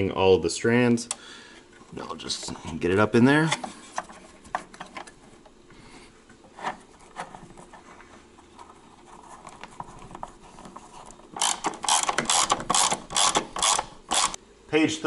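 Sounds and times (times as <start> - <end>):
cable rubbing and handling: 3.3 - 5.7, 6.3 - 14.4
ratchet clicks: 11.4 - 14.4.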